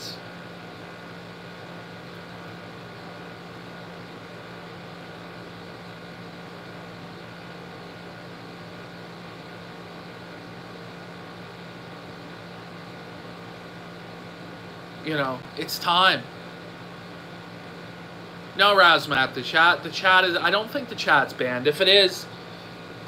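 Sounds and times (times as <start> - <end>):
room noise hum and hiss: 0.0 - 23.0.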